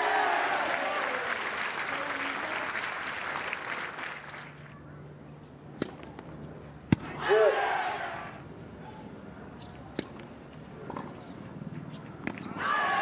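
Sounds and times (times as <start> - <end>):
crowd applauding and cheering: 0.0 - 4.6
tennis ball bouncing on court: 5.8 - 6.2, 9.6 - 12.6.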